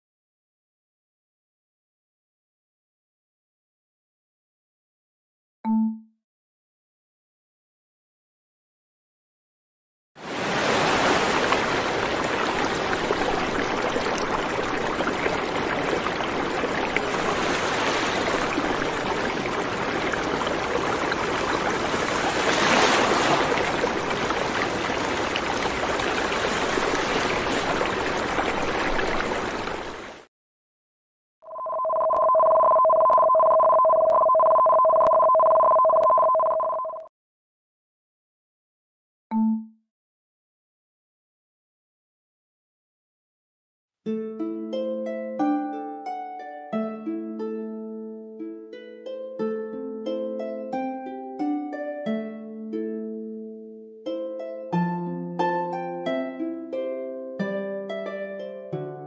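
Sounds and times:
two-tone warning alert: 31.5s - 37.1s.

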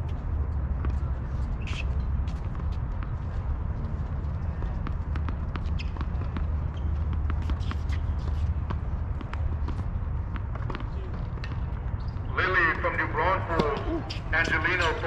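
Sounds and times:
tennis balls bouncing and struck: 3.9s - 15.0s.

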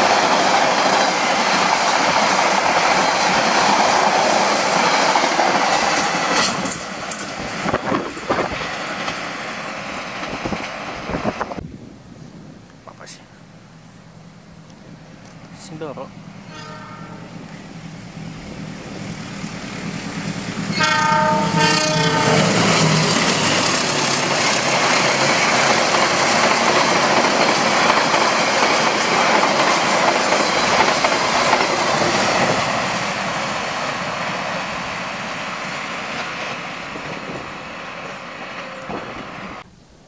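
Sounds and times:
train wheels on rails: 0.0s - 11.6s, 14.6s - 39.7s
train horn blast: 16.4s - 17.4s, 20.7s - 23.7s.

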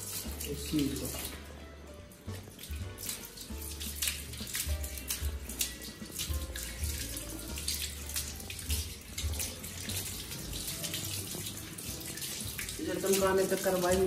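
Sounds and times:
water running and splashing: 0.0s - 14.0s.

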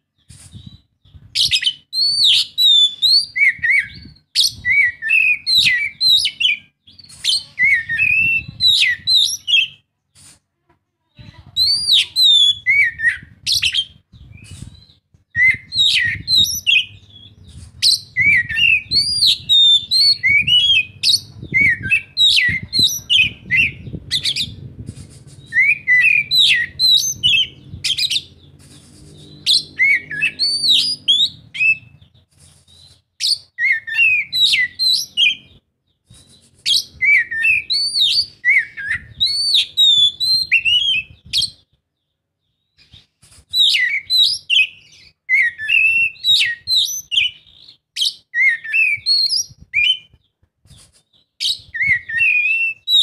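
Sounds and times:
bird singing whistled phrases: 1.4s - 9.8s, 11.6s - 24.6s, 25.4s - 28.3s, 29.2s - 32.0s, 32.8s - 35.5s, 36.7s - 41.6s, 43.6s - 50.2s, 51.4s - 53.0s.

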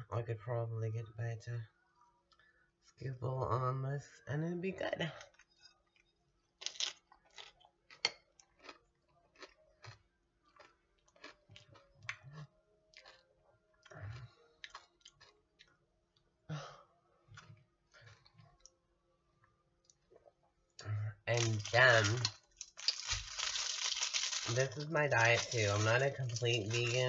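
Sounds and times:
person chewing crunchy chips: 5.3s - 15.8s, 17.4s - 18.8s, 21.3s - 27.0s.

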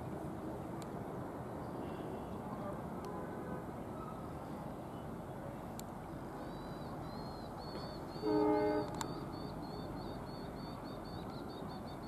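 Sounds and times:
outdoor background noise: 0.0s - 12.0s
faint high chirping: 6.4s - 12.0s
vehicle horn blast: 8.2s - 9.0s.

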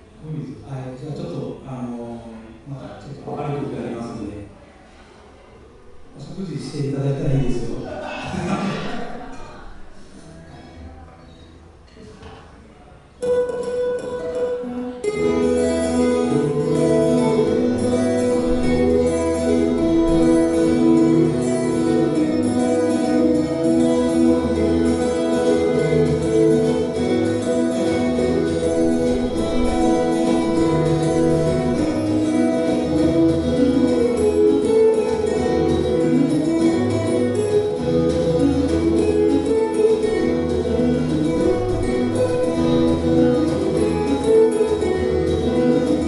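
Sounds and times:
acoustic guitar duet: 0.0s - 46.0s.

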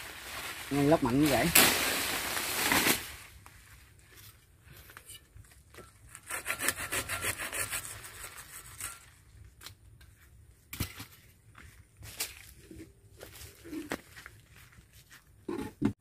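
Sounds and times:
hand saw cutting wood: 6.1s - 9.0s.

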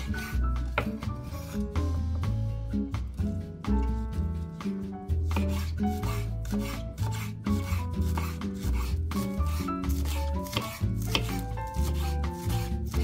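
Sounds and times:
knife chopping on wooden board: 0.0s - 1.6s, 5.2s - 13.0s
background music: 0.0s - 13.0s.

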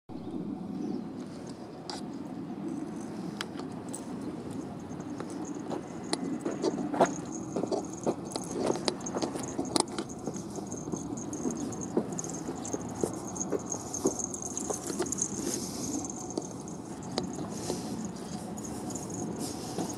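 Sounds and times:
leash clips jingling: 2.6s - 19.9s
claws clicking on pavement: 2.7s - 19.9s.

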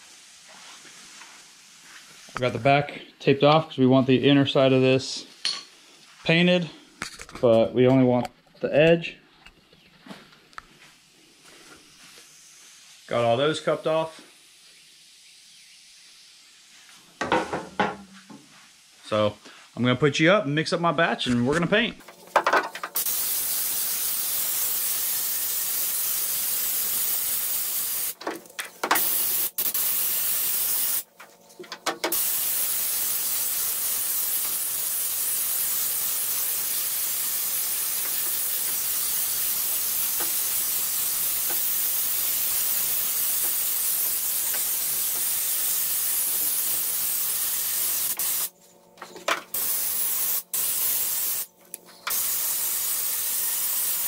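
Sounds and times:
spray gun hissing: 22.9s - 28.2s, 28.8s - 31.1s, 32.0s - 48.5s, 49.5s - 51.5s, 52.1s - 54.0s.

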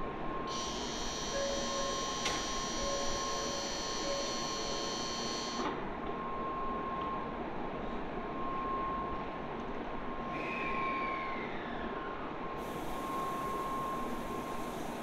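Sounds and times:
high-pitched electronic buzzer: 0.5s - 5.6s
faint steady whine: 11.2s - 15.0s.

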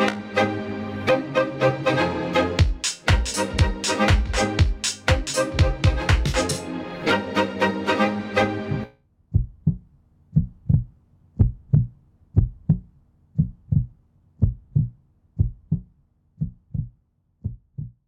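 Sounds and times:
heartbeat thumps: 2.6s - 6.4s, 9.3s - 18.0s.

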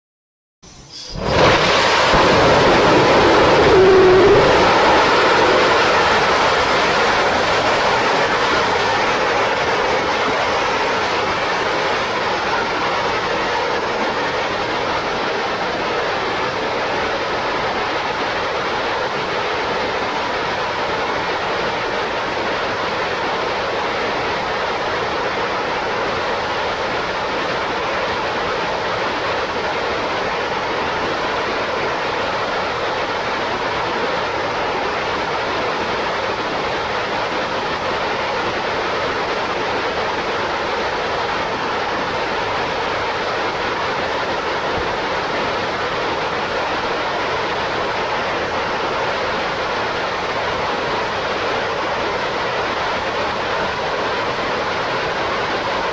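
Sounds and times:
rocket engine rushing: 0.7s - 12.6s.

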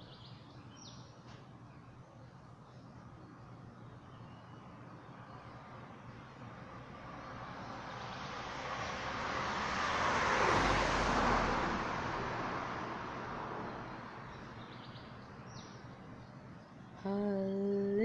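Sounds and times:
vehicle passing: 5.1s - 16.2s.

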